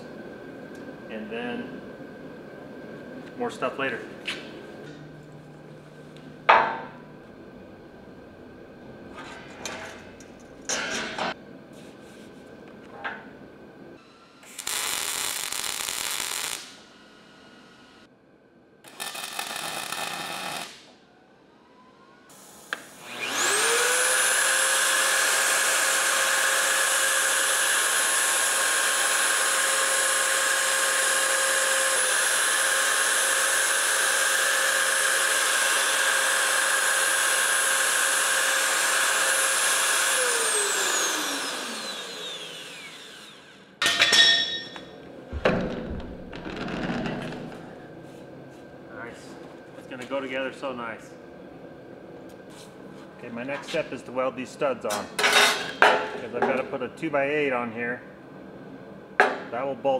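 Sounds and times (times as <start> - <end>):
tack welding on steel: 14.0 - 17.8, 18.8 - 21.0
magnetic drill press boring steel: 23.0 - 44.8.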